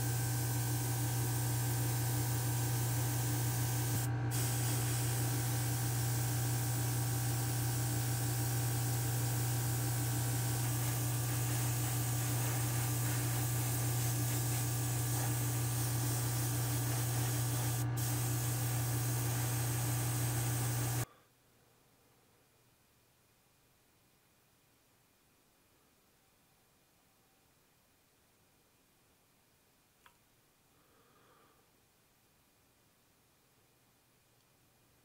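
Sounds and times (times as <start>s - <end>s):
airbrush spraying hiss: 0.0s - 21.0s.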